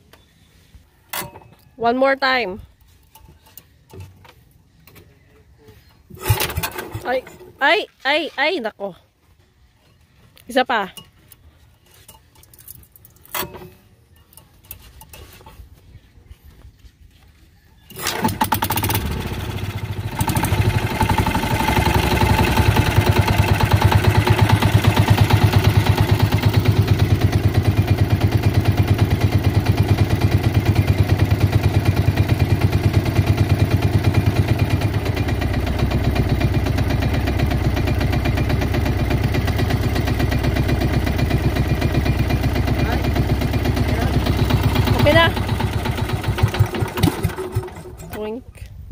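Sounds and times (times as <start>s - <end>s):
engine starting knocks: 6.2s - 7.4s, 17.9s - 19.4s, 44.3s - 48.0s
boat engine running: 18.0s - 48.3s.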